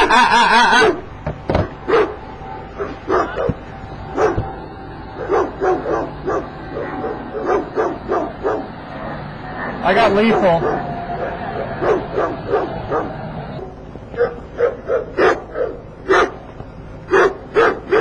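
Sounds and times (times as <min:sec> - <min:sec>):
dog barking: 0:01.9 - 0:02.2, 0:02.8 - 0:04.5, 0:05.2 - 0:08.7, 0:10.3 - 0:13.2, 0:14.1 - 0:16.4, 0:17.1 - 0:18.0.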